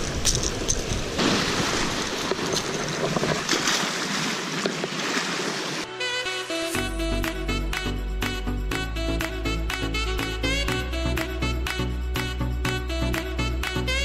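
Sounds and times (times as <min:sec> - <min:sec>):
wind on microphone: 0:00.0 - 0:03.6
surf washing over rocks: 0:00.0 - 0:05.9
music: 0:05.9 - 0:14.0.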